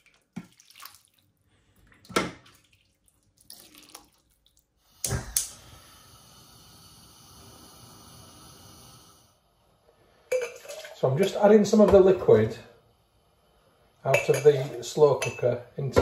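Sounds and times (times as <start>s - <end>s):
liquid splashing and pouring: 0.0s - 4.8s, 10.3s - 11.0s
steady hiss: 4.8s - 10.3s
metal ladle clinking on pots: 14.1s - 15.6s.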